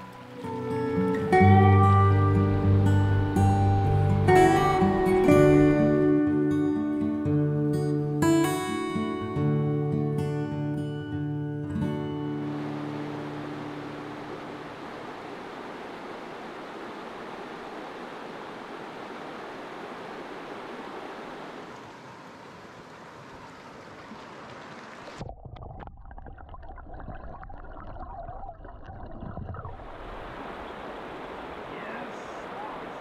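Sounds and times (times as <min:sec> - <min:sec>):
river rushing over rocks: 0:12.3 - 0:23.1, 0:29.8 - 0:33.0
muffled underwater bubbling: 0:25.2 - 0:30.2.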